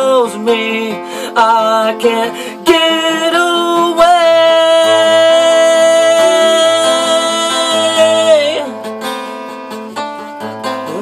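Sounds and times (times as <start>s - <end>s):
strummed acoustic guitar: 0.0s - 11.0s
man singing held note: 4.0s - 8.7s.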